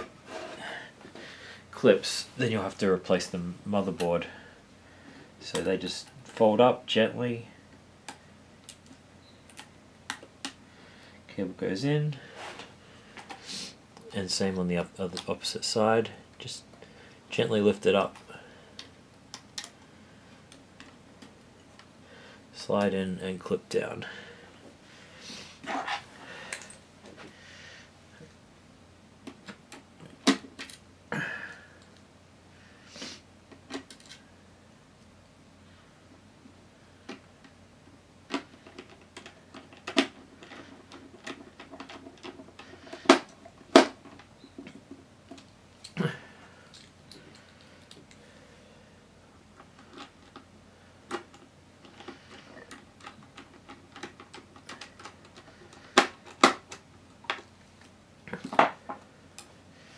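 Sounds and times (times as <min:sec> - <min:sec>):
plastic laptop parts handled: 0:51.1 - 0:58.8.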